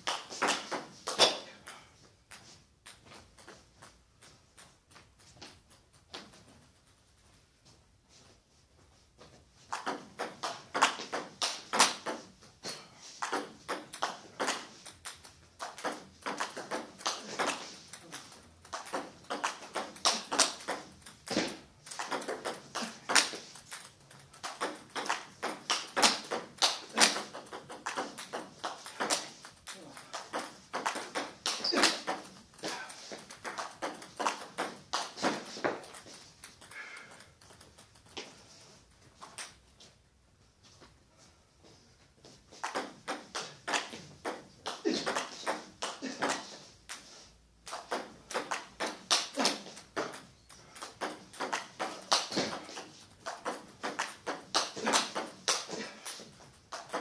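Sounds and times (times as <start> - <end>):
table tennis ball clicks: 42.6 - 47.0.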